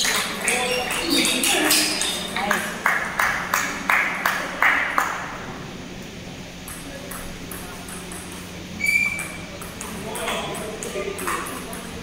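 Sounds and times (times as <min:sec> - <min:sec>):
table tennis ball bouncing: 0:06.6 - 0:12.0.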